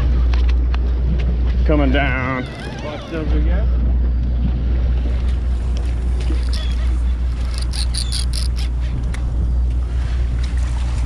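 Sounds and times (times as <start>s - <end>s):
boat engine droning: 0.0s - 11.0s
high chirps: 6.3s - 8.7s.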